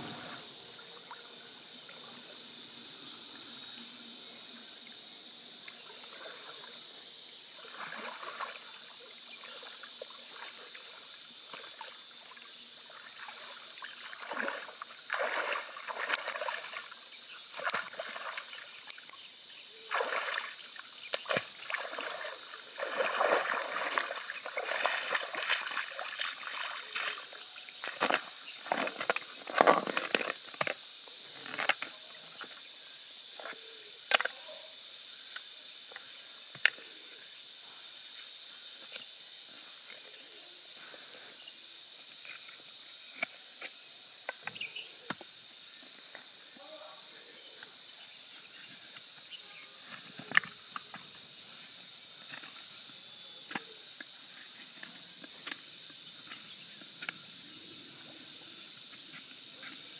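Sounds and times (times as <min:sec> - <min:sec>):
high insect drone: 0:00.0 - 0:59.9
footsteps splashing in shallow water: 0:13.0 - 0:16.9, 0:17.5 - 0:18.6, 0:19.9 - 0:30.3.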